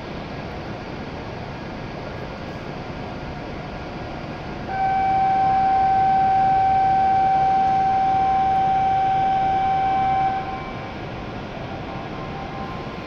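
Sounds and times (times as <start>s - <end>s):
station hum: 3.1s - 13.0s
steady high electronic tone: 4.7s - 13.0s.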